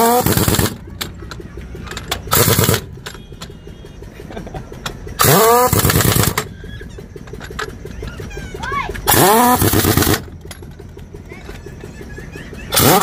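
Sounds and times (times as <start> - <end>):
pneumatic impact wrench bursts: 0.0 - 1.2, 1.8 - 3.2, 5.2 - 6.6, 9.0 - 10.6, 12.7 - 13.0.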